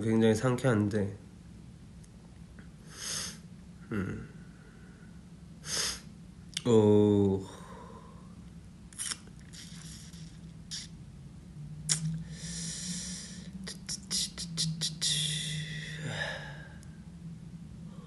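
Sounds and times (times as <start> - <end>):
low steady hum: 0.0 - 18.0
person breathing and sniffing: 2.9 - 3.4, 5.6 - 6.1, 9.0 - 10.9, 12.2 - 14.5
short falling vocal sound: 3.9 - 4.3.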